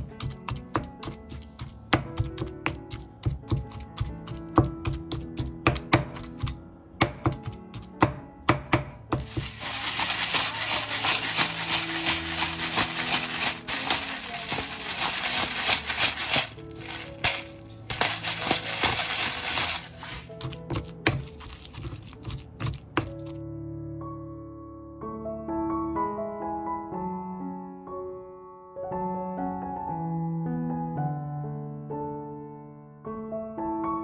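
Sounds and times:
pestle pounding in stone mortar: 0.0s - 23.3s
background music: 0.0s - 31.4s
pepper mill grinding: 9.2s - 23.3s.

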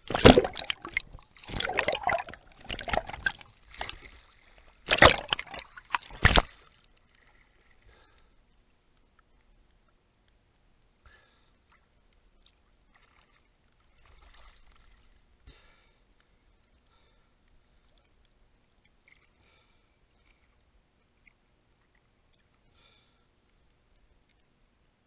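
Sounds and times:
water splashing around swimmer: 0.0s - 7.7s, 12.9s - 15.2s.

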